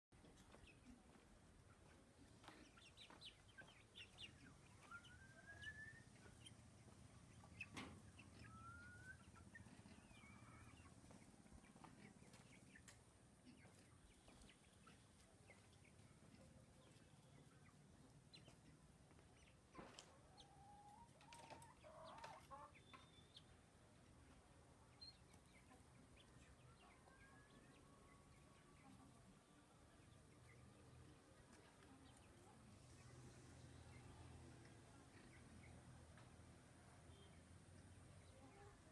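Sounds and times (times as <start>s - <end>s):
chicken clucking: 0.2s - 37.0s, 37.8s - 38.9s
bird chirps: 2.8s - 6.6s, 22.7s - 23.6s.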